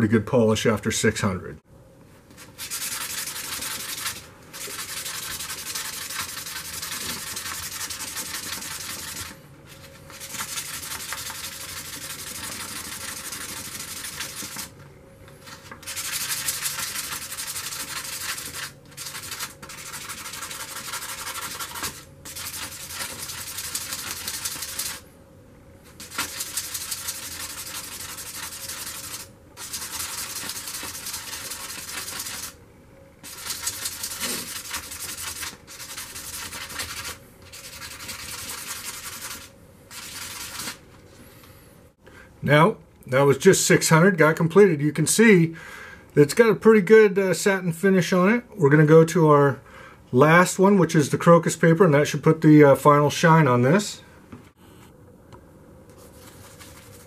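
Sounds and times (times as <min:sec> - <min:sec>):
metal scraping on sandpaper: 0:02.5 - 0:14.7, 0:15.5 - 0:25.0, 0:26.0 - 0:32.6, 0:33.2 - 0:40.8.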